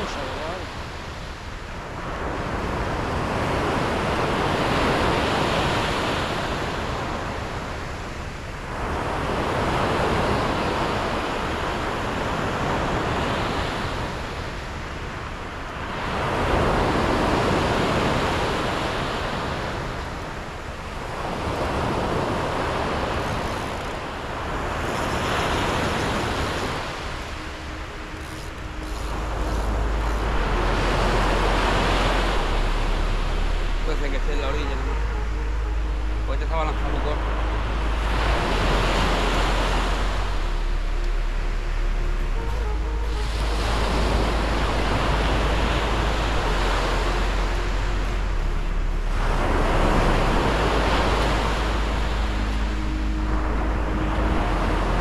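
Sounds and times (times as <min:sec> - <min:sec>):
sea waves breaking on shore: 0:00.0 - 0:55.0
low rumble: 0:26.4 - 0:55.0.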